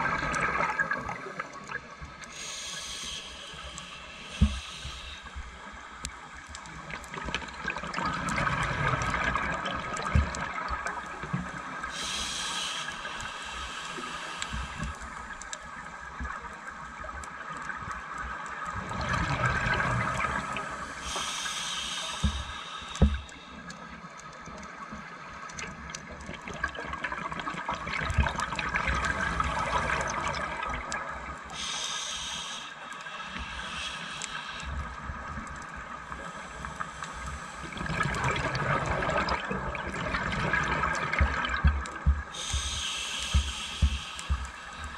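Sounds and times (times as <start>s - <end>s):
scuba regulator breathing underwater: 2.3s - 5.7s, 11.8s - 15.2s, 20.2s - 23.7s, 31.5s - 35.0s, 40.2s - 44.9s.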